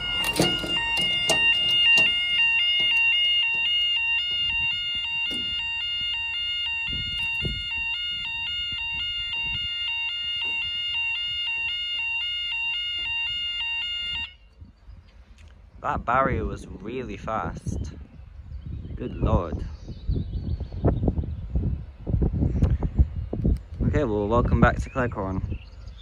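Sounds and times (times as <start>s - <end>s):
level crossing two-tone alarm: 0.0s - 14.4s.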